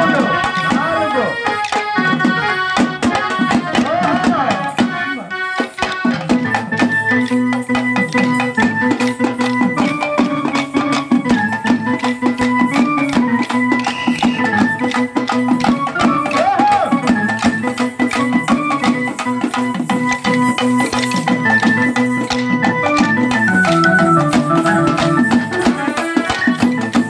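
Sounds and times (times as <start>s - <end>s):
rapid drumming: 0.0s - 27.0s
wavering melody: 4.6s - 27.0s.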